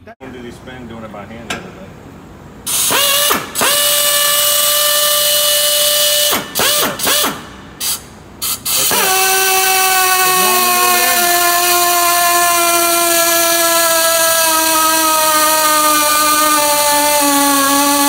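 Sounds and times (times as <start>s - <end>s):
air torque wrench whining: 2.6s - 18.0s
air hissing: 2.7s - 11.4s.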